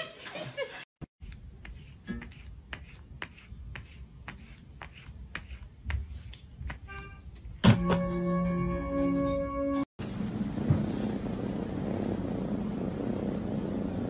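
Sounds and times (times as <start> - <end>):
low room rumble: 10.0 - 14.0.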